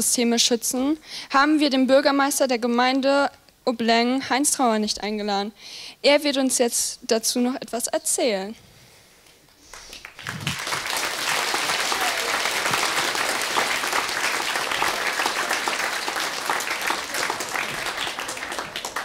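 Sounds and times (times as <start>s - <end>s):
audience applauding: 9.7s - 19.0s.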